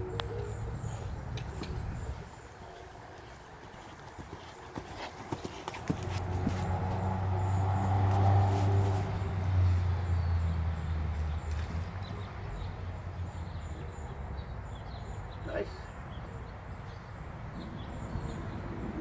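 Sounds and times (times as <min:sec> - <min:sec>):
hooves thudding on sand: 0:00.0 - 0:10.1.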